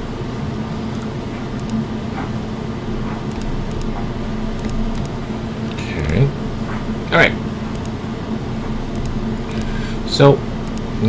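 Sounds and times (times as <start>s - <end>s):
low mechanical hum with tone: 0.0s - 11.0s
faint clicks: 8.9s - 9.8s, 10.6s - 10.9s.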